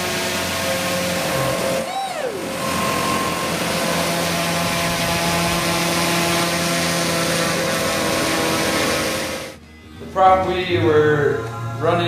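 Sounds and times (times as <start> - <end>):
leaf blower engine: 0.0 - 9.6
small engine spinning propeller: 0.0 - 9.6.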